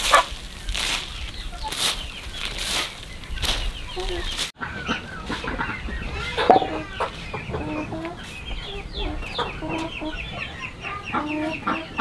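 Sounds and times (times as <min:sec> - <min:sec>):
plant matter rustling on a tarp: 0:00.0 - 0:04.6
chickens clucking: 0:00.0 - 0:12.0.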